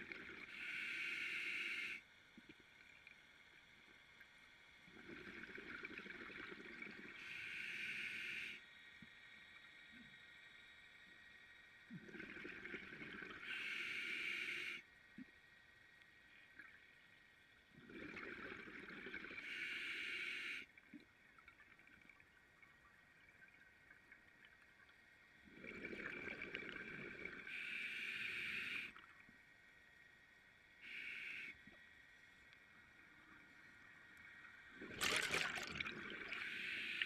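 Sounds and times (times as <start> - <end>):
diver breathing through regulator: 0.5 - 2.0, 7.2 - 8.6, 13.4 - 14.8, 19.4 - 20.7, 27.5 - 29.0.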